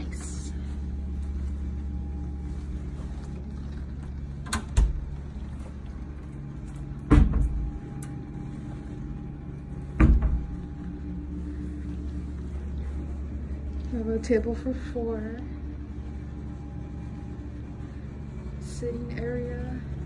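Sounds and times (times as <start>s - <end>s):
steady low hum: 0.0s - 20.0s
cabinet door shutting: 7.1s - 7.8s, 10.0s - 10.7s
heavy thumps: 9.9s - 11.0s.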